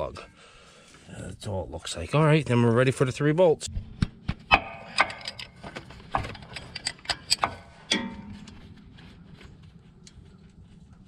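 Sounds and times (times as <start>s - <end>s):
metal clink: 4.5s - 8.8s
wrench clicking: 6.3s - 8.6s.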